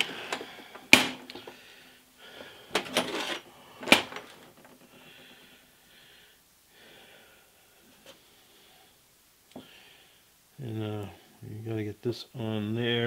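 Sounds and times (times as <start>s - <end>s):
soft handling sounds: 2.3s - 5.0s.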